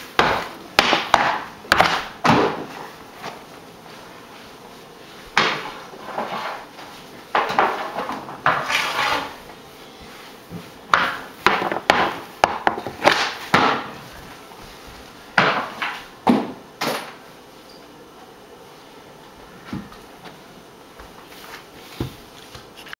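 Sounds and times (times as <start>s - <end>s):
hockey stick knocking on wooden floor: 0.2s - 2.8s, 10.5s - 13.9s.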